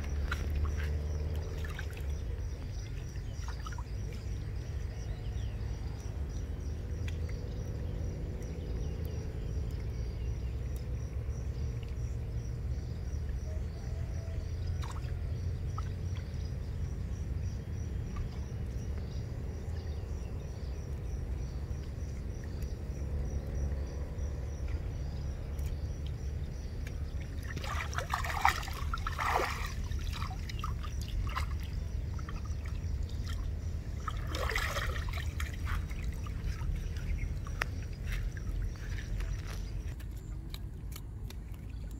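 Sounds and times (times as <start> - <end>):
water splashing: 0.0 - 4.5, 26.8 - 41.9
steady low rumble: 0.0 - 41.9.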